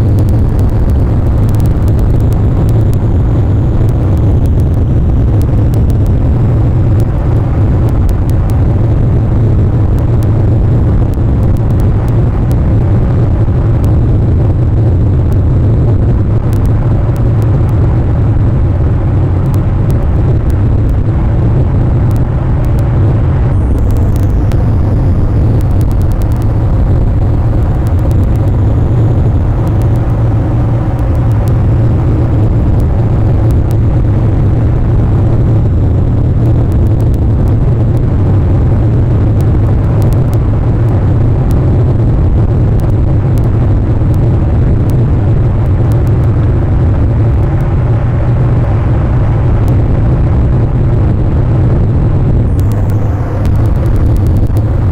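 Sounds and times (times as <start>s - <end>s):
faint clicks: 0.0s - 6.3s, 16.5s - 17.8s, 23.5s - 33.9s, 52.5s - 54.9s
loud low rumble: 0.0s - 54.9s.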